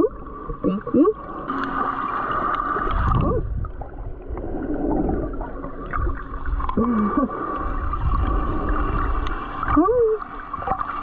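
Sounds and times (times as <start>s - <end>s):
low rumble: 0.0s - 10.8s
water sloshing and gurgling: 0.0s - 11.0s.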